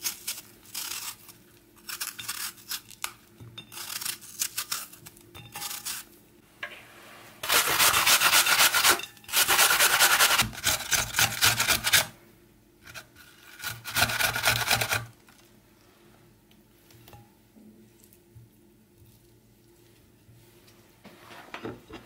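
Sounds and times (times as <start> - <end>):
apple grated on box grater: 7.4 - 12.2, 12.9 - 15.1.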